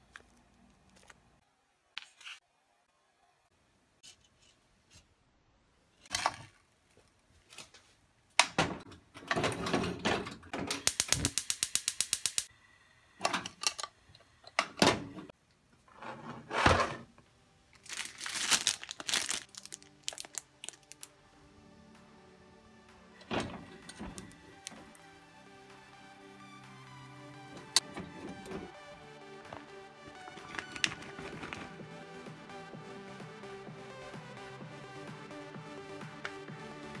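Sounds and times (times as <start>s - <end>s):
fast sharp clicks: 10.8s - 12.5s.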